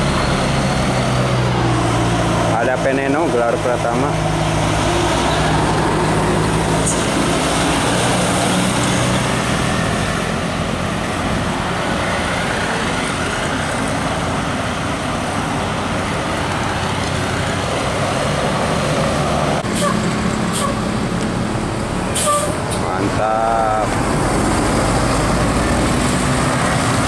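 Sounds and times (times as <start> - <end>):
bus and truck engines: 0.0 - 27.0
road traffic noise: 0.0 - 27.0.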